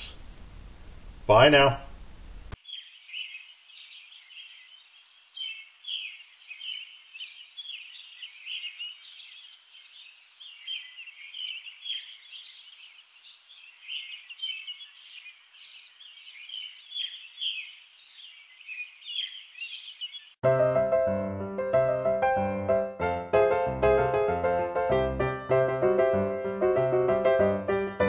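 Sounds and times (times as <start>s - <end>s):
small birds chirping: 2.6s - 20.4s.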